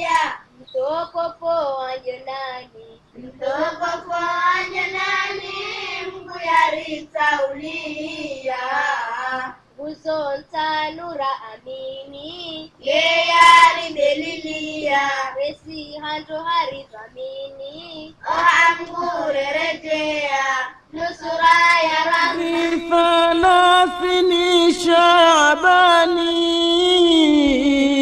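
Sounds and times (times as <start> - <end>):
high voice singing: 21.1 - 28.0.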